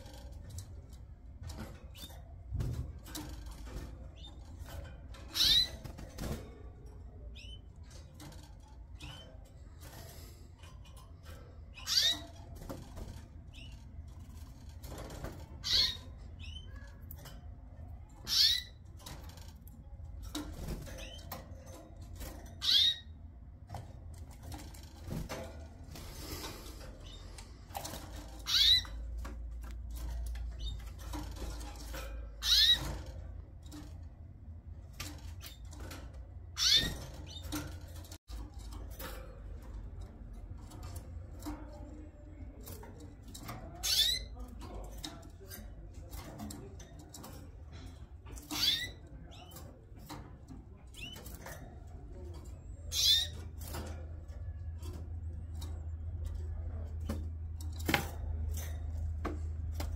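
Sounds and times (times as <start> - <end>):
canaries chirping: 0.0 - 34.1, 35.0 - 58.6.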